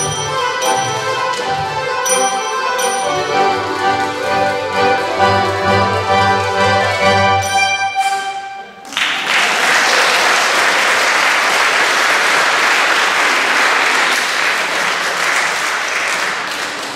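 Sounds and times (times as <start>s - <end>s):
accordion ensemble chord: 0.0s - 8.8s
audience applause: 8.8s - 16.9s.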